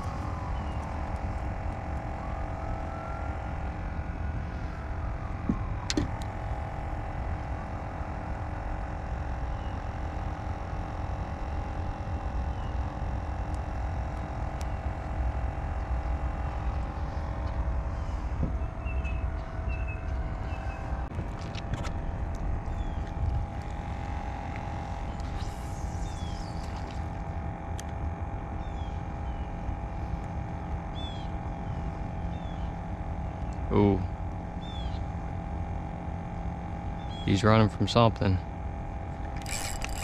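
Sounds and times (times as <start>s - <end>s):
small boat motor running: 0.0s - 40.0s.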